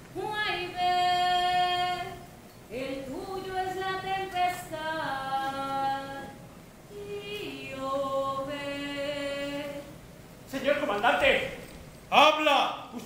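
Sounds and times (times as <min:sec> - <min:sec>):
person singing unaccompanied: 0:00.2 - 0:10.0.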